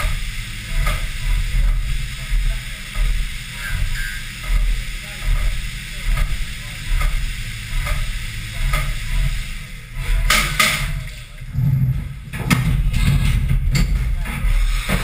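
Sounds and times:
coolant hissing: 0:00.0 - 0:12.9, 0:13.6 - 0:15.0
loud bursts of machine noise: 0:00.0 - 0:15.0
low machine rumble: 0:00.0 - 0:15.0.

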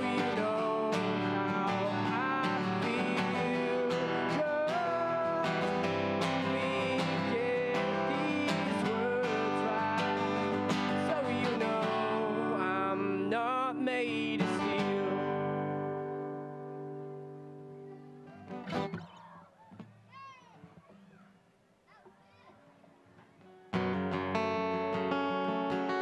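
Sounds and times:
man singing: 0:00.0 - 0:16.2
strummed acoustic guitar: 0:00.0 - 0:21.1, 0:22.2 - 0:26.0.

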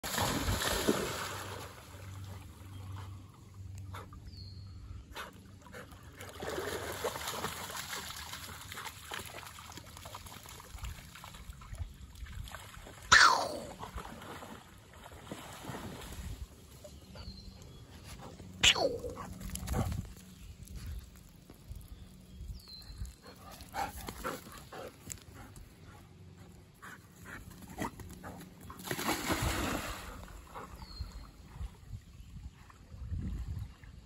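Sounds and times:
dog splashing through water: 0:00.0 - 0:02.3, 0:06.0 - 0:11.6, 0:28.7 - 0:30.5.

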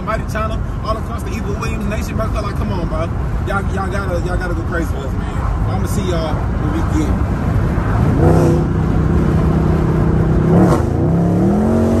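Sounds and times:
car engine accelerating: 0:07.2 - 0:12.0.

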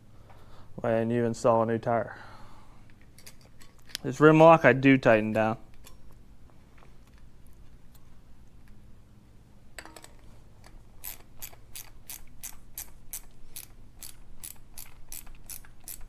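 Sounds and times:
ratchet wrench clicking: 0:11.0 - 0:16.0.

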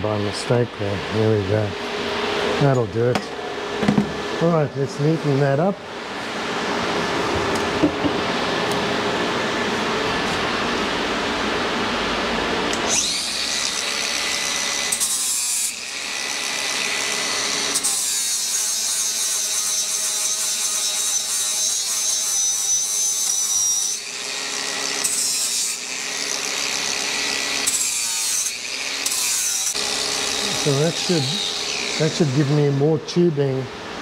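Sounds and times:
angle grinder grinding steel: 0:12.7 - 0:33.0.

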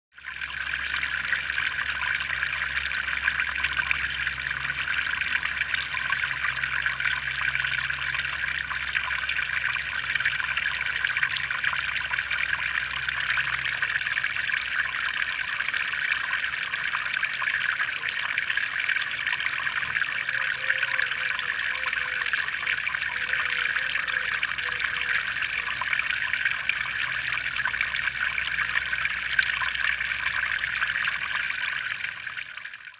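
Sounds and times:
fountain water trickling: 0:00.1 - 0:32.9.

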